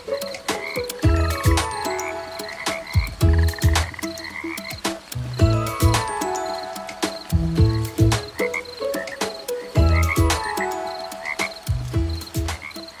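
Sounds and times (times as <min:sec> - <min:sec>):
frogs croaking: 0:00.0 - 0:13.0.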